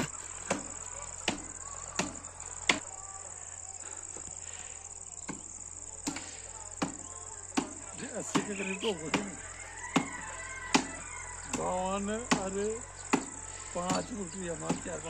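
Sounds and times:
crickets chirping: 0:00.0 - 0:15.0
hand tool chopping brick: 0:07.6 - 0:09.3, 0:11.5 - 0:15.0.

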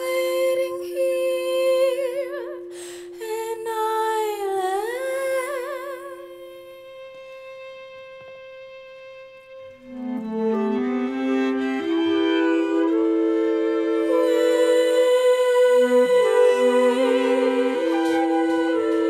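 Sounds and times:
woman singing wordlessly with vibrato: 0:00.0 - 0:07.0, 0:13.8 - 0:19.0
held low note: 0:09.9 - 0:19.0.

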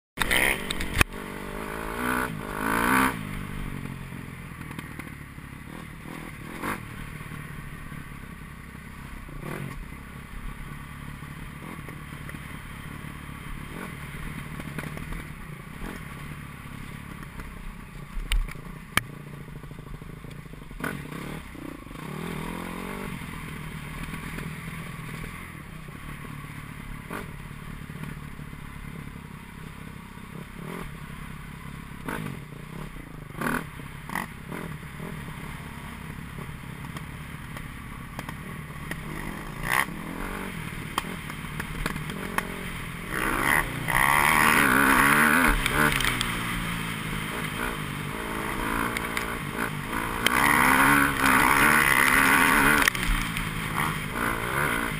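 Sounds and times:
dirt bike engine revving: 0:00.2 - 0:17.6, 0:18.6 - 0:37.4, 0:38.2 - 0:54.9.

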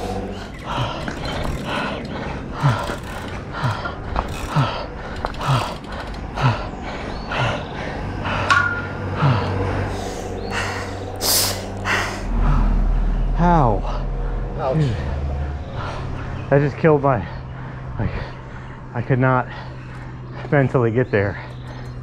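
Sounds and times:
grunting exhalations: 0:00.0 - 0:16.5
cyclist breathing hard: 0:00.0 - 0:22.0.

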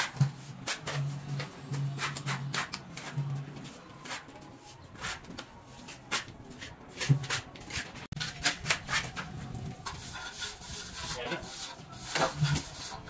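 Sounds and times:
trowel scraping mortar on brick: 0:05.9 - 0:13.0.

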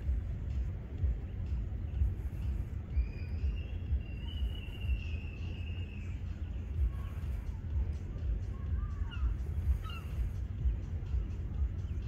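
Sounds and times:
wind rumble on microphone: 0:00.0 - 0:12.0
faint high whistle: 0:02.9 - 0:06.2.

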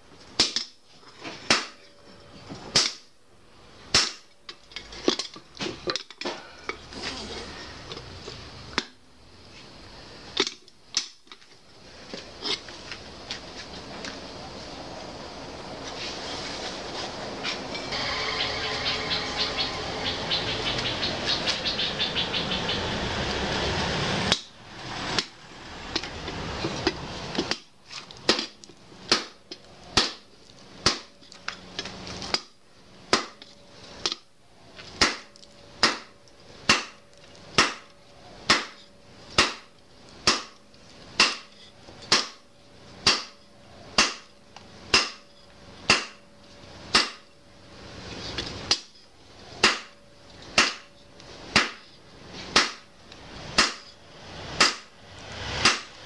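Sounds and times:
loud rushing noise: 0:14.4 - 0:27.3, 0:53.2 - 0:56.0
hammer blows ringing on anvil: 0:17.7 - 0:21.9.

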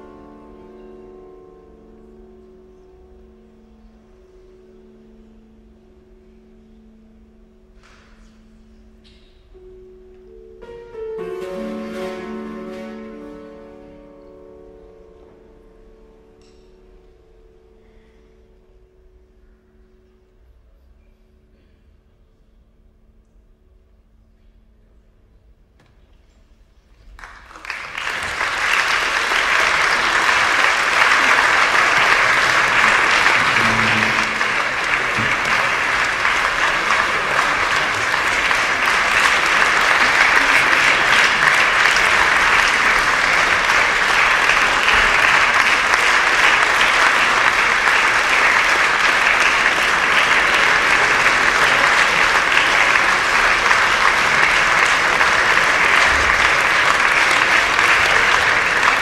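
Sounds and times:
audience applauding: 0:11.2 - 0:14.3, 0:27.1 - 0:59.0.

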